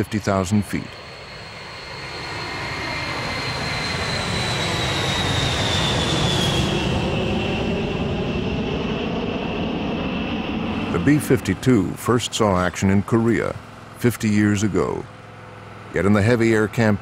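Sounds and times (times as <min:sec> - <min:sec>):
jet engines passing: 0:00.0 - 0:17.0.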